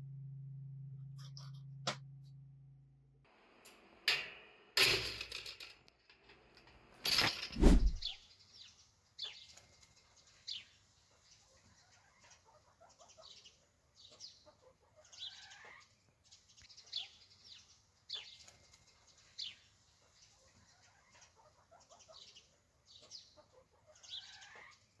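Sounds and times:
low bird chatter: 7.2 - 25.0.

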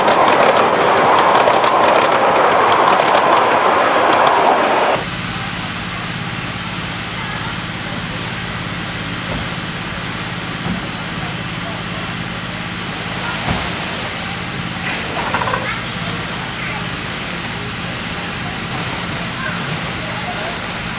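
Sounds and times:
low hum: 0.0 - 7.1
steam locomotive hissing: 0.0 - 20.9.

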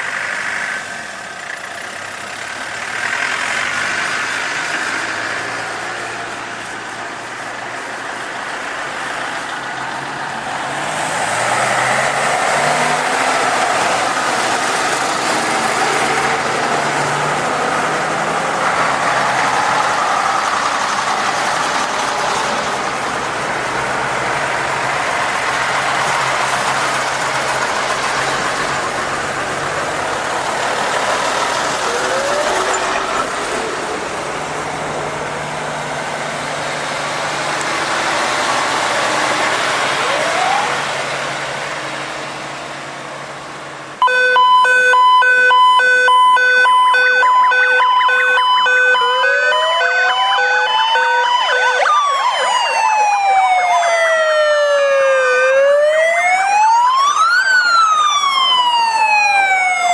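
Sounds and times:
fire truck engine: 0.0 - 59.9
street noise: 0.0 - 59.9
wailing sirens: 10.3 - 21.3, 31.0 - 33.6, 38.0 - 41.2, 44.0 - 59.9
loud pulsing siren: 31.8 - 33.1, 39.9 - 41.0, 44.0 - 59.9.

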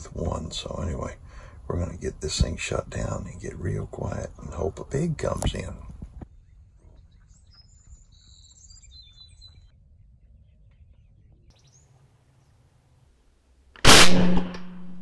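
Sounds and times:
small birds chirping: 3.0 - 12.7
loud air rifle shot: 13.8 - 15.0.

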